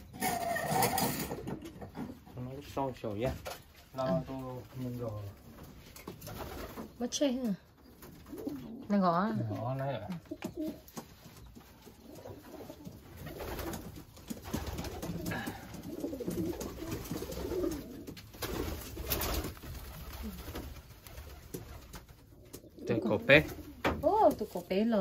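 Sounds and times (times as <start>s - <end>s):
pigeons cooing: 8.0s - 25.0s.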